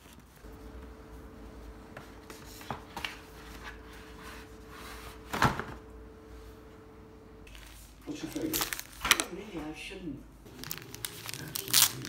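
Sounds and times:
faint steady hum: 0.1 - 9.0
box and paper bag rustling: 7.5 - 9.4, 10.5 - 12.0.

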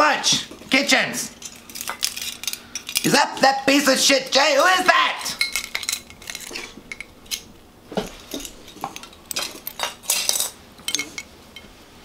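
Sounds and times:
keychains clinking: 1.4 - 3.1, 5.3 - 7.5.

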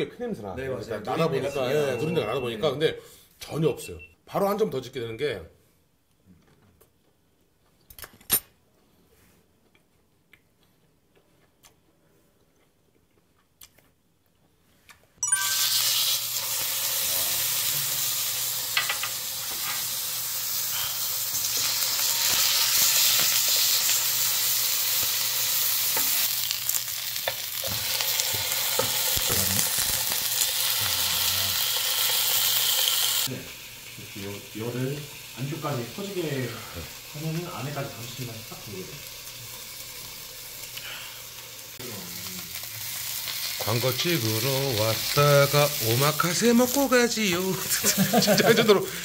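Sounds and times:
steak sizzling in a frying pan: 15.4 - 49.0.

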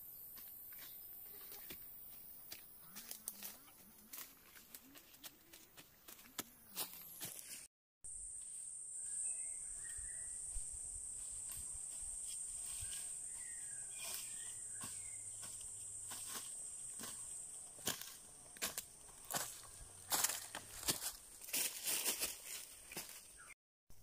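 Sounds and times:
footsteps on dry leaves: 2.9 - 7.7, 11.1 - 23.5
insects droning: 8.1 - 23.4.

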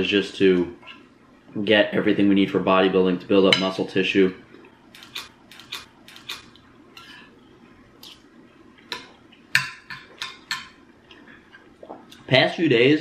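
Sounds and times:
fork scraping ceramic bowl: 5.0 - 7.3.

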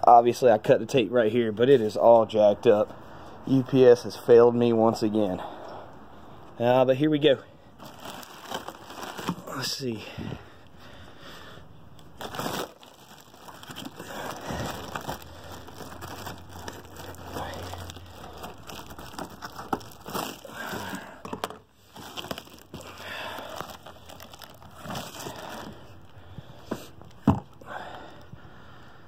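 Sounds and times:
plastic packaging crinkling: 7.8 - 9.7, 12.0 - 26.2.

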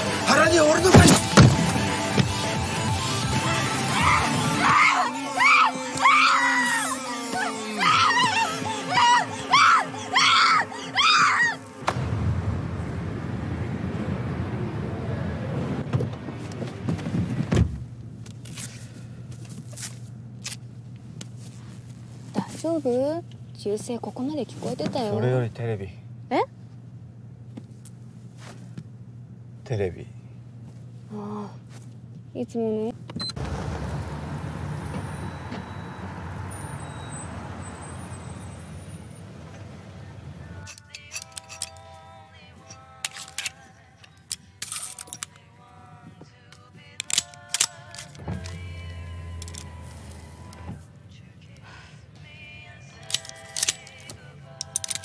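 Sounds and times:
car driving away: 0.0 - 17.9, 33.2 - 40.6, 48.1 - 50.9
low engine hum: 0.0 - 40.7, 45.5 - 54.8
steady low rumble: 11.8 - 18.3
car door shutting: 15.8 - 17.9, 34.6 - 36.7, 48.2 - 49.7.

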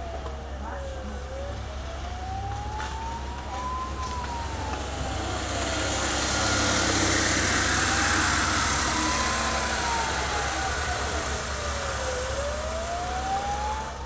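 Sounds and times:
emergency siren wailing: 0.0 - 14.0
vehicle engine and road noise: 0.0 - 14.0.

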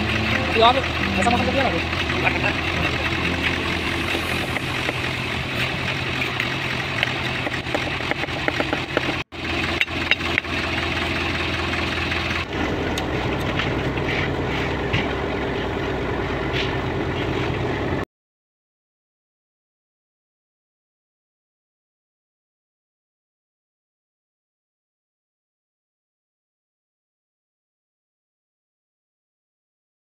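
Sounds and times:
engine humming: 0.0 - 18.0.

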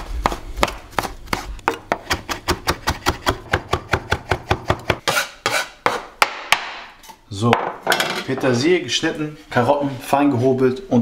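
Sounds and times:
knife chopping on wooden board: 0.0 - 6.9.

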